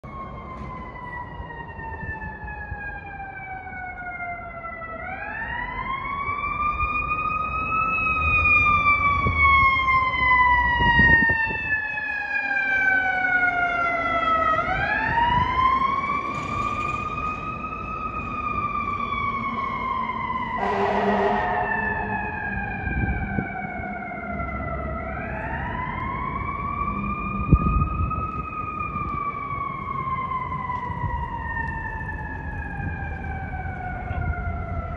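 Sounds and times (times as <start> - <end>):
truck engine rumbling: 14.3 - 34.9
horn blast: 20.6 - 23.1.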